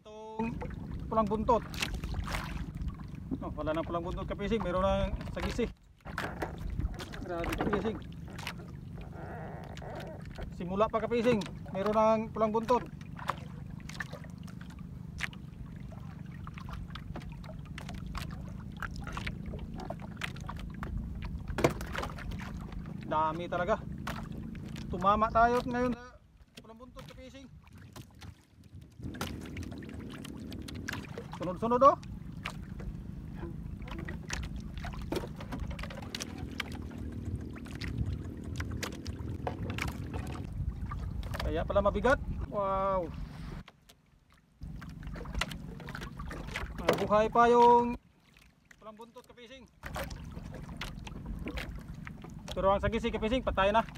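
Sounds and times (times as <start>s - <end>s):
water and wind against hull: 0.0s - 53.9s
line and hooks knocking on wooden hull: 4.5s - 9.1s, 17.0s - 23.0s, 32.4s - 40.5s, 44.6s - 47.8s
clicks and knocks of fishing line: 33.8s - 40.5s.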